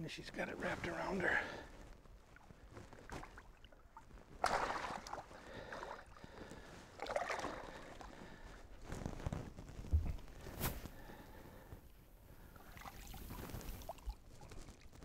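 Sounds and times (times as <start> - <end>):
water splashing in a landing net: 2.4 - 8.2, 12.6 - 14.8.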